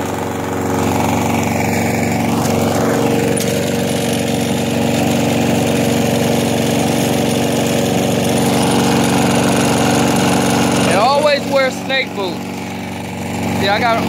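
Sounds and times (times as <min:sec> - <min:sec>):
lawn mower engine running: 0:00.0 - 0:14.0.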